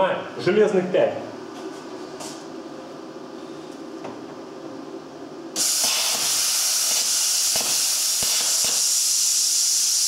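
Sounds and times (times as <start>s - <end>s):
low machine hum: 0.0s - 5.6s
plasma cutter hissing: 5.6s - 10.0s.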